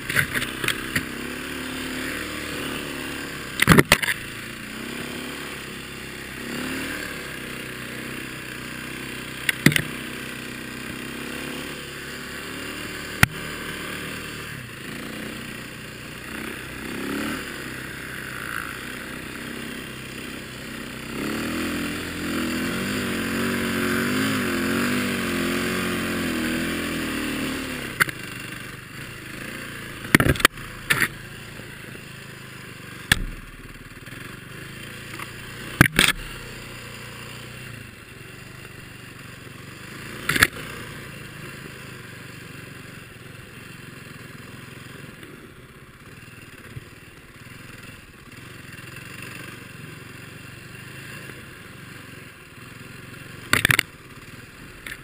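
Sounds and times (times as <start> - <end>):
dirt bike engine revving: 0.0 - 43.0
sharp knocks and clatters: 33.1 - 33.8.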